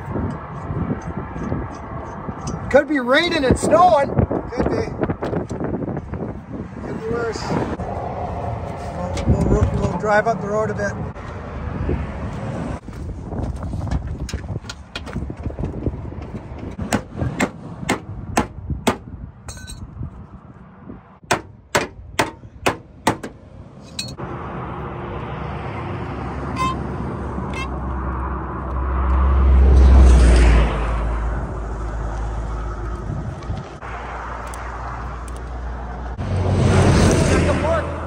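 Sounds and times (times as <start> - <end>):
hammer clanging on steel: 21.3 - 24.2.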